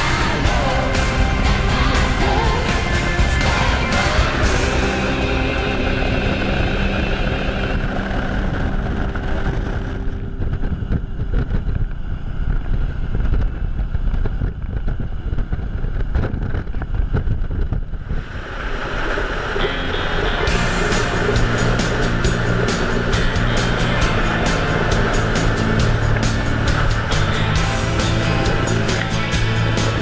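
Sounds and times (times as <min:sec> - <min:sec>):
background music: 0:00.0 - 0:10.3, 0:19.6 - 0:30.0
motorcycle engine running: 0:00.0 - 0:18.1, 0:19.2 - 0:30.0
wind on microphone: 0:00.0 - 0:19.7.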